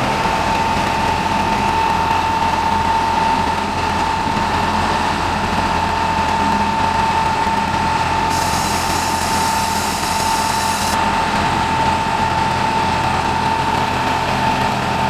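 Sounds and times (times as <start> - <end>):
high hydraulic whine: 0.0 - 15.0
mixer engine running: 0.0 - 15.0
hiss: 8.3 - 11.0.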